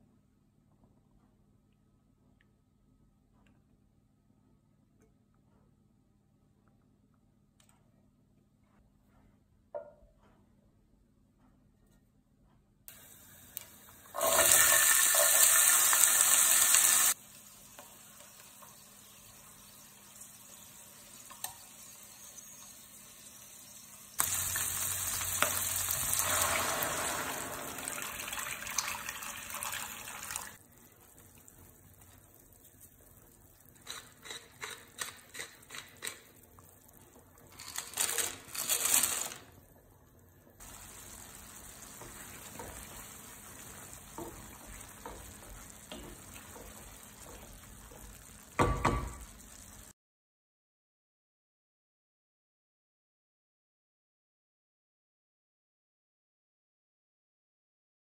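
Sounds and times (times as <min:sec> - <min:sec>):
frying hiss: 0:12.9 - 0:38.3, 0:40.6 - 0:50.0
chickpeas sizzling in oil: 0:12.9 - 0:39.4, 0:40.6 - 0:50.0
water hissing and splashing in pan: 0:13.0 - 0:30.6, 0:40.6 - 0:49.9
clatters in a pan: 0:33.7 - 0:36.4, 0:37.4 - 0:39.4.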